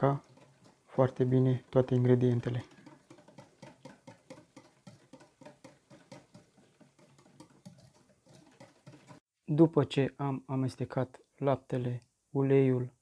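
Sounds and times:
whisk beating batter in metal bowl: 0:00.0 - 0:09.2.

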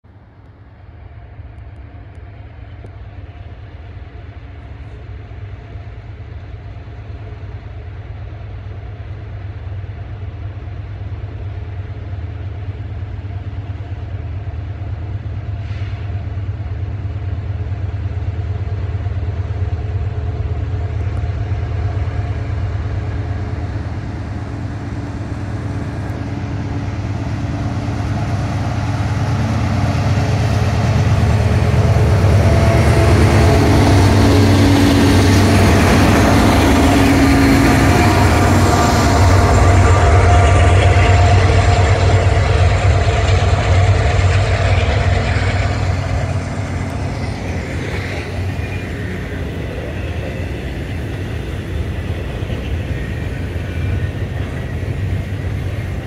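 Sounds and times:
freight locomotives rumbling: 0:00.0 - 0:56.0.

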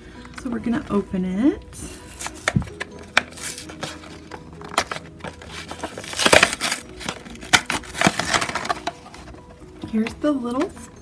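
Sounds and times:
plastic packaging crinkling: 0:02.1 - 0:09.4
cardboard tearing: 0:03.2 - 0:09.1.

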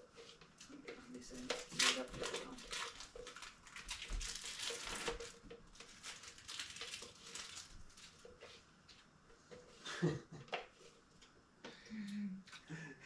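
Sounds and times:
plastic wrappers crinkling: 0:00.0 - 0:08.6.

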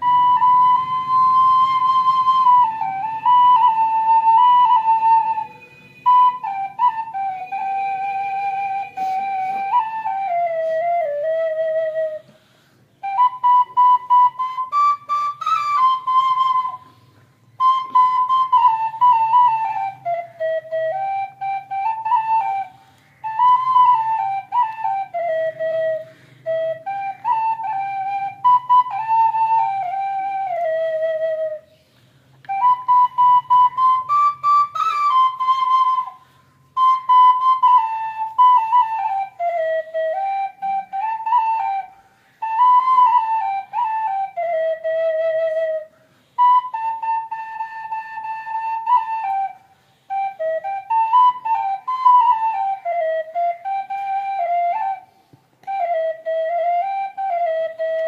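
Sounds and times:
wooden flute melody: 0:00.0 - 0:58.0.

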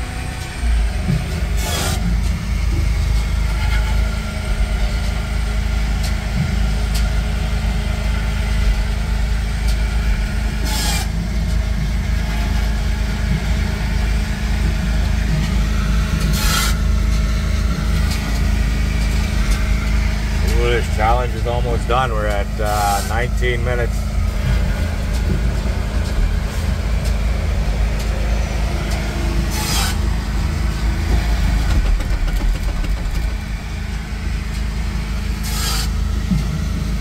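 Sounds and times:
diesel engine idling: 0:00.0 - 0:37.0.

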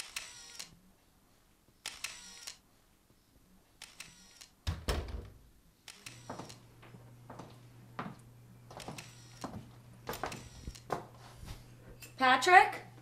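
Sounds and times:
camera shutter clicks: 0:00.0 - 0:00.8, 0:01.8 - 0:02.6, 0:03.8 - 0:04.6, 0:05.9 - 0:06.6.

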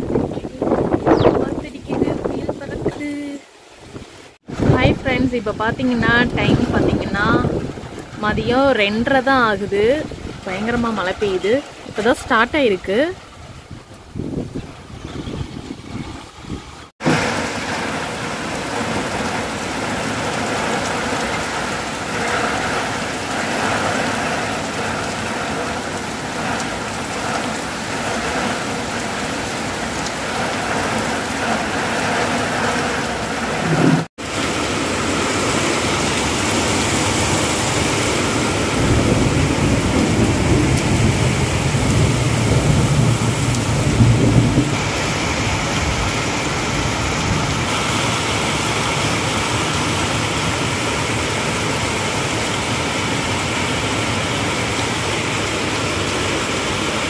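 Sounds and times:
heavy rain on a road: 0:17.0 - 0:57.0.

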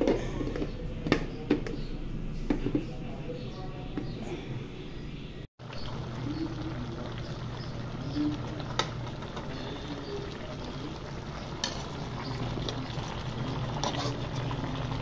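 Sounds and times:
stew bubbling in a metal pot: 0:05.6 - 0:15.0.

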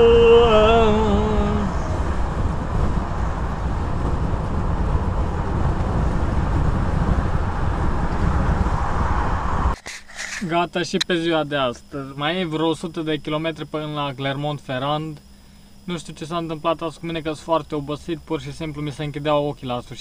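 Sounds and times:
lorry engine and road drone: 0:00.0 - 0:10.4.

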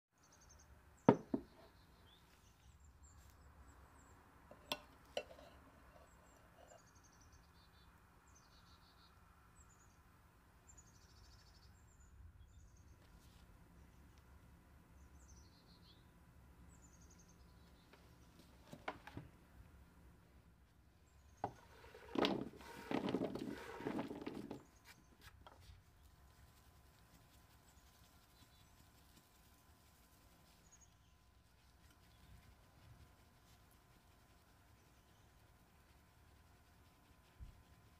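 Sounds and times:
small birds chirping: 0:00.2 - 0:18.9, 0:20.9 - 0:22.1, 0:23.7 - 0:37.9
bowl knocking on wooden table: 0:01.1 - 0:01.7.

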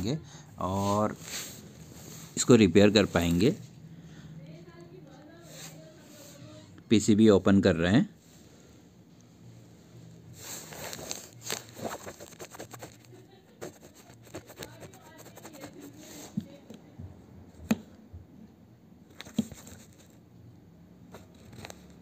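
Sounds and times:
scraping and rustling of plastic: 0:10.4 - 0:16.3.

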